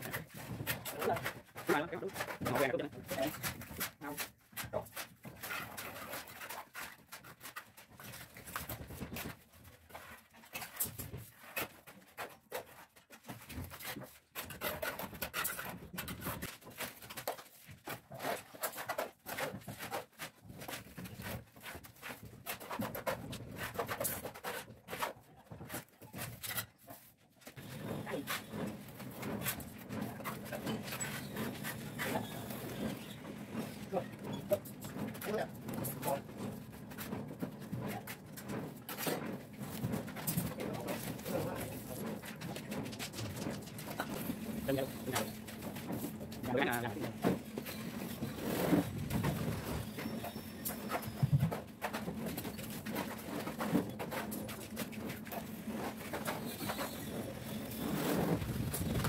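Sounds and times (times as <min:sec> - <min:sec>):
trowels scraping mortar: 0:27.6 - 0:36.3.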